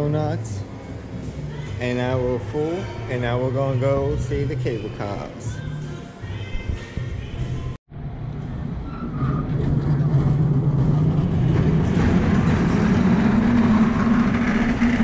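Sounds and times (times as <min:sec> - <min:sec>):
cable car rolling on rails: 0:08.5 - 0:15.0.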